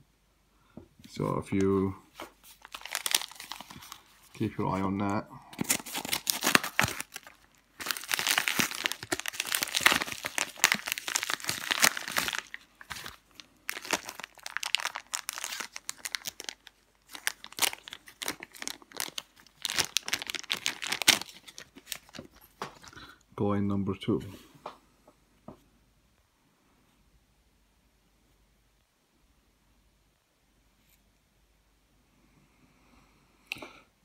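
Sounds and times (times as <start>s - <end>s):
paper and plastic rustling: 1.6s - 4.8s, 5.5s - 23.0s.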